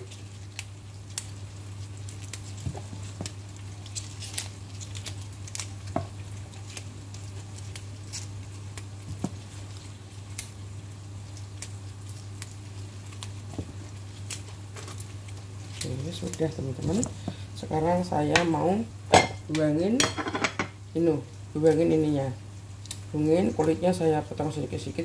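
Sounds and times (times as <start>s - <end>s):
leaves and stems snapping: 0.1s - 1.4s, 2.0s - 10.6s, 11.3s - 17.2s, 22.8s - 23.1s.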